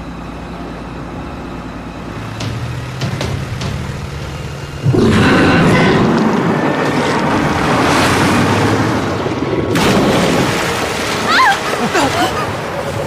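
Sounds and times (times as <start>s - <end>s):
outboard motor running: 0.0s - 13.0s
loud rushing rumble: 2.4s - 11.2s.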